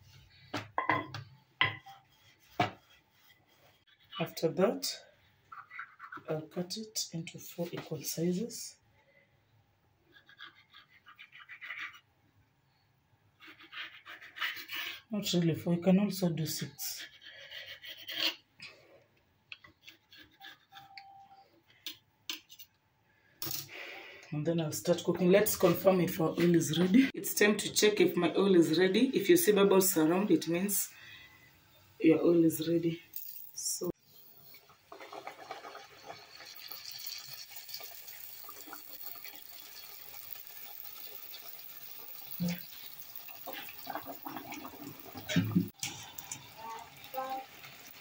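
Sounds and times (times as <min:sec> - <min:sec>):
knife scraping and tapping tile: 0:00.8 - 0:03.0, 0:21.8 - 0:22.7
dough sizzling in hot oil: 0:34.1 - 0:48.0.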